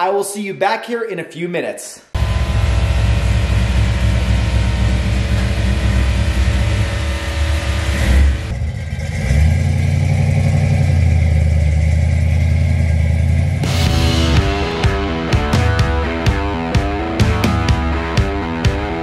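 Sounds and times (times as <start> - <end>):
car engine idling rumble: 2.2 - 13.6.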